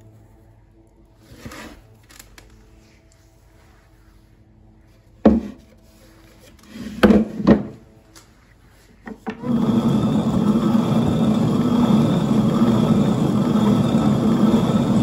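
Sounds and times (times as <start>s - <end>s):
stone-on-stone grinding: 9.4s - 15.0s.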